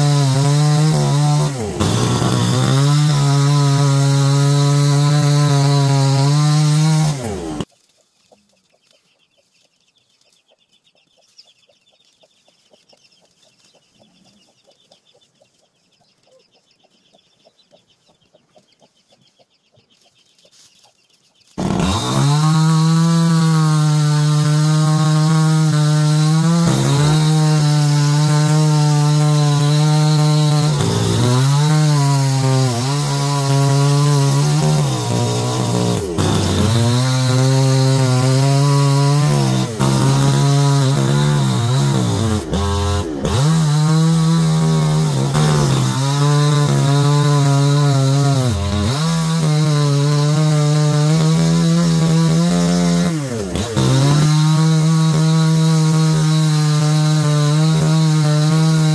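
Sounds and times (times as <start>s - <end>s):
chainsaw cutting logs: 0.0s - 7.7s, 21.6s - 58.9s
hen and chicks clucking and peeping: 7.7s - 21.6s.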